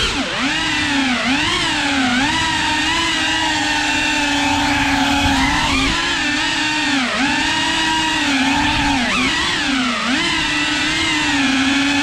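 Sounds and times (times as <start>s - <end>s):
drone motors whining: 0.0s - 12.0s.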